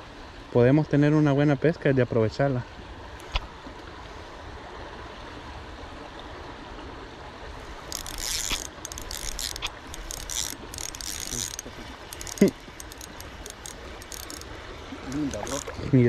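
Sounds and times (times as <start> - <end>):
fishing reel whirring: 7.8 - 15.8.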